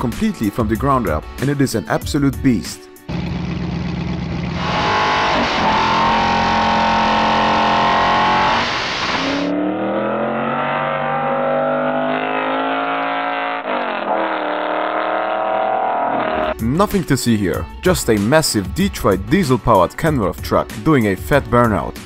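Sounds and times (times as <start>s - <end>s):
car engine revving: 3.1s - 16.6s.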